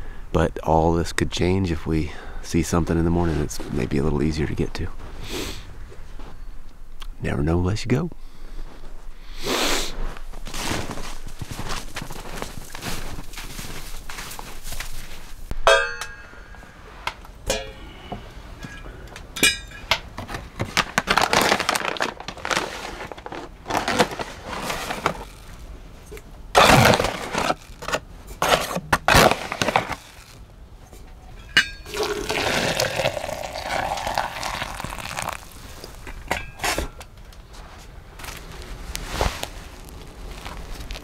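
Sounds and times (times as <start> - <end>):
metal pot and lid clinking: 15.7 - 16.6, 17.5 - 17.8, 19.4 - 20.0, 31.4 - 32.0, 36.3 - 37.0
water pouring: 31.8 - 36.0
coffee grounds tipped from foil bag: 31.9 - 36.0.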